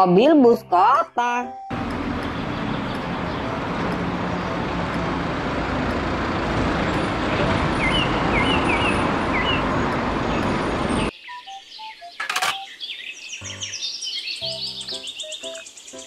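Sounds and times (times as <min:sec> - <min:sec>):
city street traffic: 0:00.6 - 0:11.1
bus driving past: 0:01.7 - 0:11.1.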